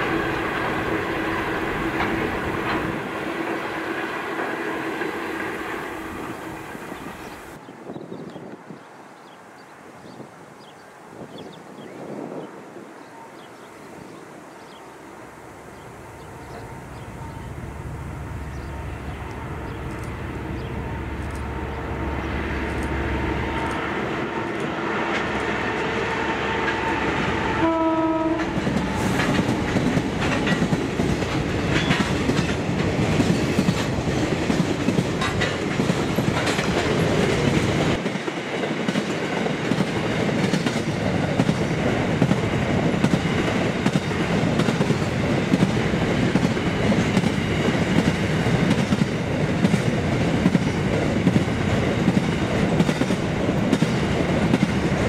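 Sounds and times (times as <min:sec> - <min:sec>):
freight train passing: 0:00.0 - 0:55.0
train horn blast: 0:16.4 - 0:29.4
wheels clacking over rail joints: 0:28.3 - 0:55.0.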